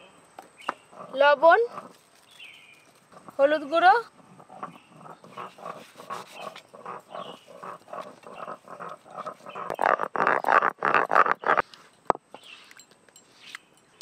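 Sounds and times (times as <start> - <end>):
stone roller grinding paste: 4.4 - 11.6.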